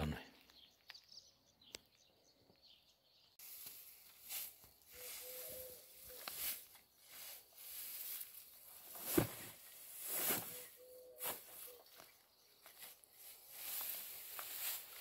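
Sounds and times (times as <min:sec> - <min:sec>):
rustling swishes of hay: 0:03.4 - 0:12.0, 0:12.6 - 0:15.0
hay thumping into wheelbarrow: 0:08.2 - 0:10.6.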